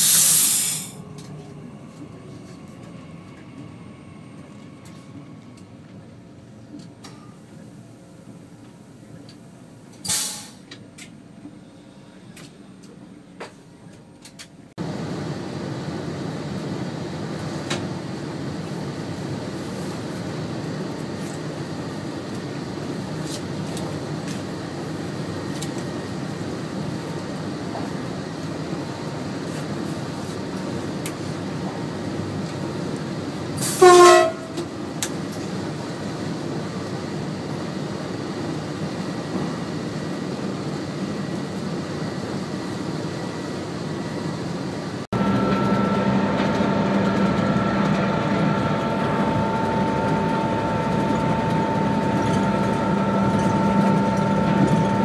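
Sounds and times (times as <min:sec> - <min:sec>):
train running noise: 0:00.0 - 0:55.0
train horn blast: 0:33.6 - 0:34.7, 0:45.2 - 0:55.0.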